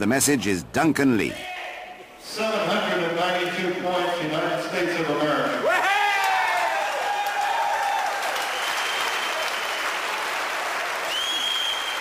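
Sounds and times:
crowd applauding: 0:06.2 - 0:12.0
high whistle: 0:08.4 - 0:09.6, 0:11.1 - 0:12.0.

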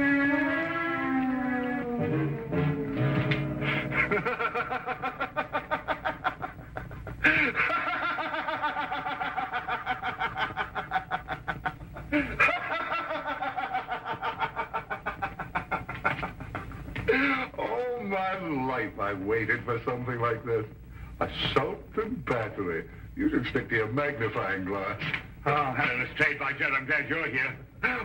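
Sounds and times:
man laughing heartily: 0:03.7 - 0:17.5.

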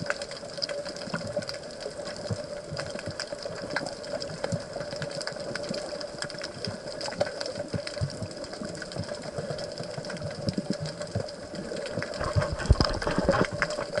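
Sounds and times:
fine crackling clicks: 0:00.0 - 0:14.0
water movement: 0:00.0 - 0:14.0
low underwater thumps: 0:12.2 - 0:14.0.

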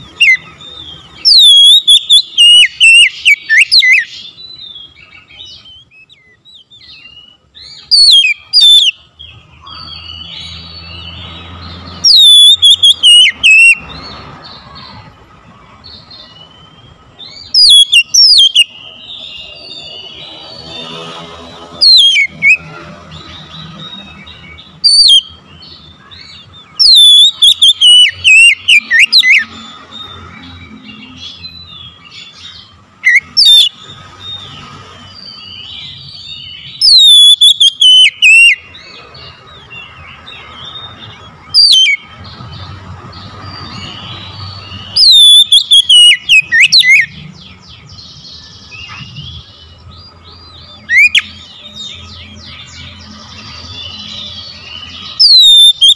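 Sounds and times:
bird singing whistled phrases: 0:00.1 - 0:14.1, 0:16.0 - 0:20.8, 0:21.8 - 0:38.8, 0:40.6 - 0:42.1, 0:43.6 - 0:47.3, 0:50.4 - 0:53.1, 0:53.8 - 0:55.9.

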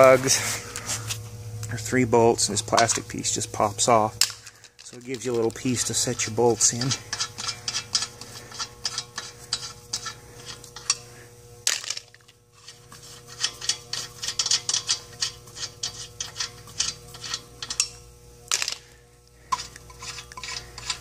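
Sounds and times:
faint steady hum: 0:00.0 - 0:21.0
ratchet wrench clicking: 0:04.2 - 0:11.0.

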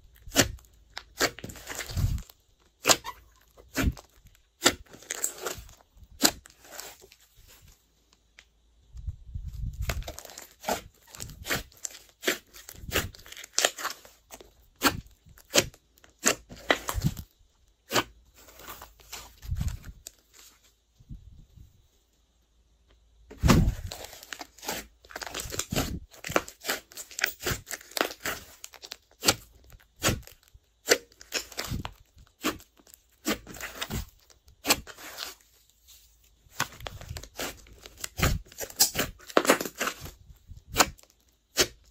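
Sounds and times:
slime squishing: 0:00.1 - 0:07.6, 0:09.8 - 0:20.4, 0:23.3 - 0:35.6, 0:36.5 - 0:41.9
air pockets popping in slime: 0:23.3 - 0:35.3, 0:36.5 - 0:41.9.

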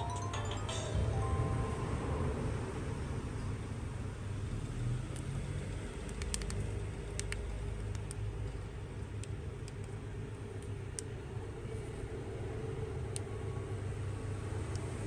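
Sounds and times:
low mechanical hum: 0:00.0 - 0:15.0
small sharp clicks: 0:06.0 - 0:08.2.

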